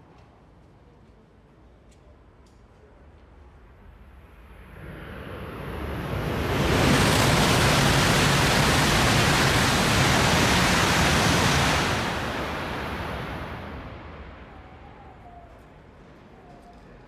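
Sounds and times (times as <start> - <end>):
train rushing past: 3.9 - 16.4
low hum: 4.1 - 15.7.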